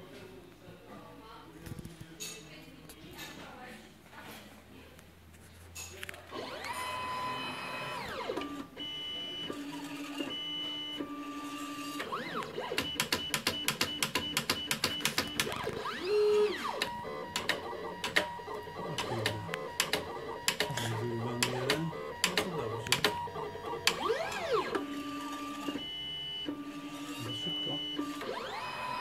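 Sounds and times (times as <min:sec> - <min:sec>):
stepper motors whining: 0:06.3 - 0:08.7, 0:15.4 - 0:29.0.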